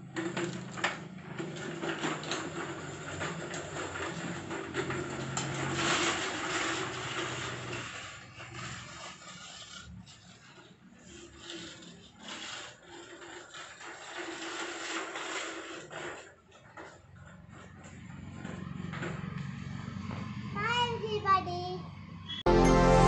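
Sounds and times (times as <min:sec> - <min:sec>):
bicycle wheels crunching on gravel: 0:00.5 - 0:19.0.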